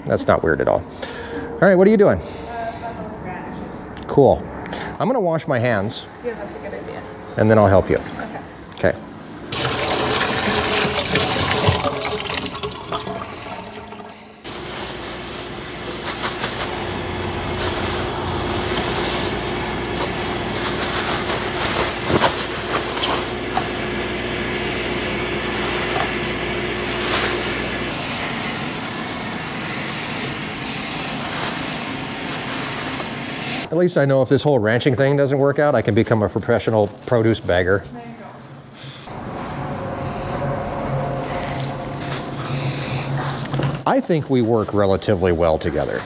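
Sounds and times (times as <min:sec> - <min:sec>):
steady low hum: 0:08.4 - 0:33.7, 0:37.6 - 0:45.8
tap water running into sink: 0:09.5 - 0:14.2
plastic bags crinkling: 0:09.6 - 0:24.0, 0:30.7 - 0:33.4.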